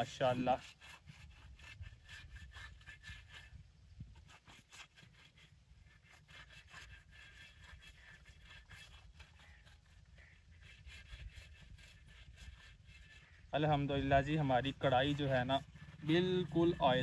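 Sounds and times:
cloth rubbing oil on clay pot: 0.0s - 17.0s
low steady rumble: 9.4s - 17.0s.

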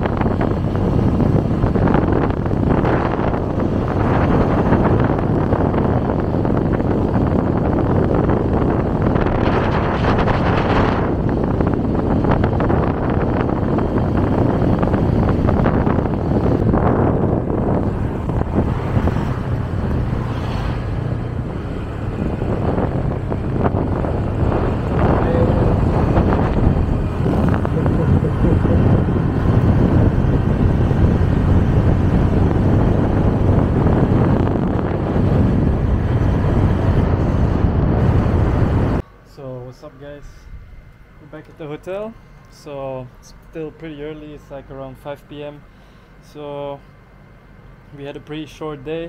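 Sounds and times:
motorbike engine: 0.0s - 39.0s
wind buffeting microphone: 0.0s - 39.0s
road noise: 0.0s - 49.0s.

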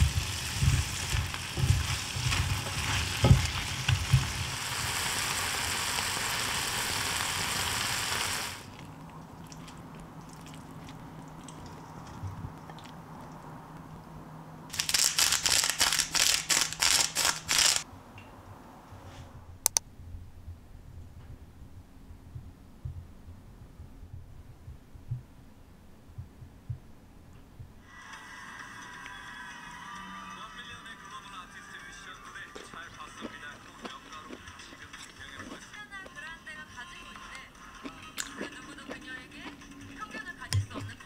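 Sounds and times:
chopsticks scraping a pan: 0.0s - 4.4s
vegetables sizzling in a pan: 0.0s - 8.7s
short clicks: 19.6s - 19.9s.

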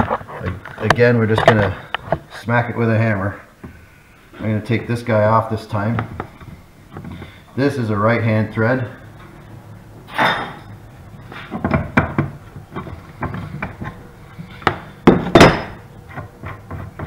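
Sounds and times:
tools clanking on bench: 10.1s - 10.8s, 14.6s - 17.0s.

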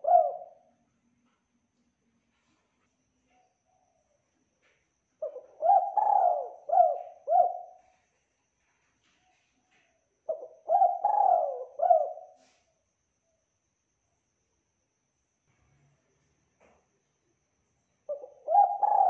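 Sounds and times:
dove cooing: 0.0s - 0.7s, 5.2s - 8.0s, 10.3s - 12.6s, 18.1s - 19.0s.

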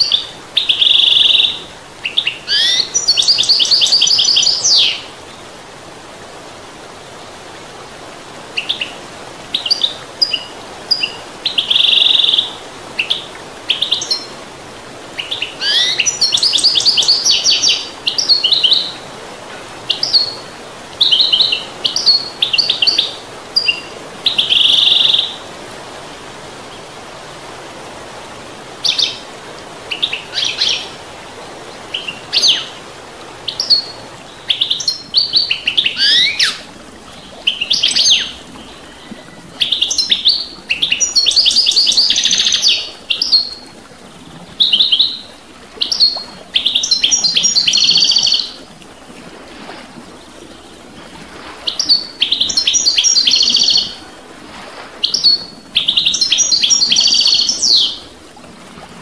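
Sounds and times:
goldfinch twittering song: 0.0s - 5.1s, 9.6s - 14.3s, 15.2s - 19.0s, 33.5s - 36.6s, 37.2s - 43.6s, 51.7s - 54.0s, 55.0s - 58.0s
stream rushing: 0.0s - 59.0s.

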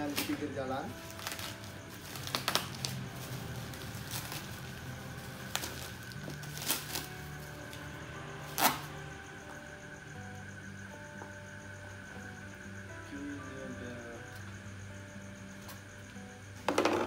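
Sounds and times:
plastic packaging crinkling: 1.0s - 4.7s.

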